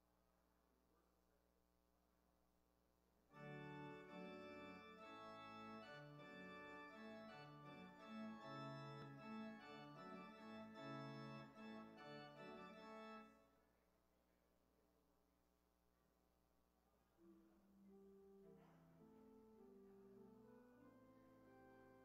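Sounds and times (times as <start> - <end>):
organ music held chords: 3.3 - 13.4, 19.0 - 22.0.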